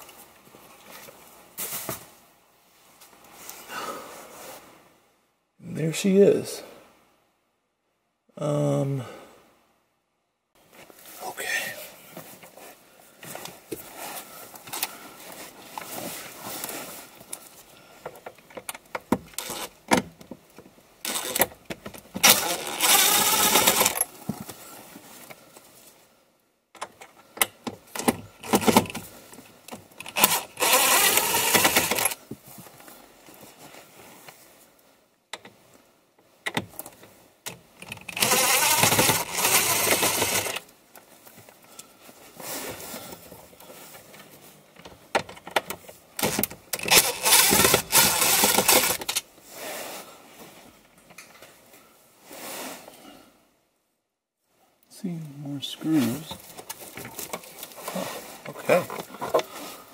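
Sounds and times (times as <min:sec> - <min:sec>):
clicks and rattles of screws: 0:21.1 - 0:24.1, 0:29.7 - 0:32.2, 0:36.5 - 0:40.6, 0:44.8 - 0:49.2
power driver running: 0:22.2 - 0:24.0, 0:30.2 - 0:32.2, 0:38.2 - 0:40.6, 0:46.2 - 0:49.1.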